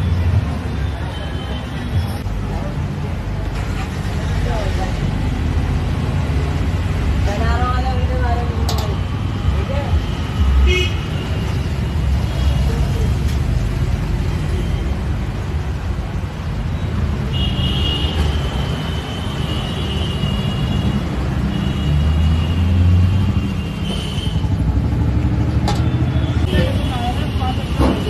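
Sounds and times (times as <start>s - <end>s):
traffic engines rumbling: 0.0s - 28.0s.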